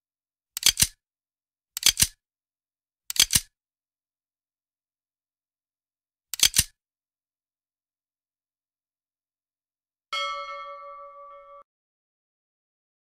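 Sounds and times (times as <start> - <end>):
mouse double clicks: 3.1 - 3.5, 6.4 - 6.8.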